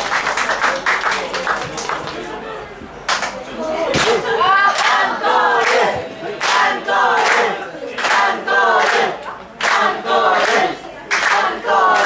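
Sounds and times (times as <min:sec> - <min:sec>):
rhythmic hand-clapping: 0:00.0 - 0:02.3, 0:03.0 - 0:03.4, 0:04.0 - 0:12.0
crowd chanting in unison: 0:03.6 - 0:12.0.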